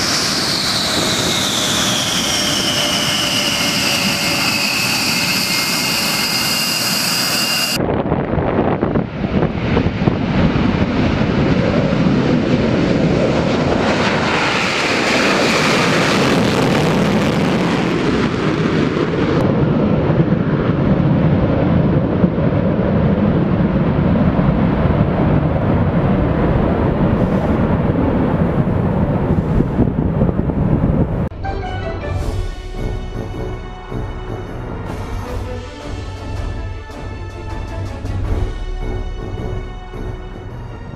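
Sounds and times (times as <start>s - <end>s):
jet engine roar: 0.0s - 31.4s.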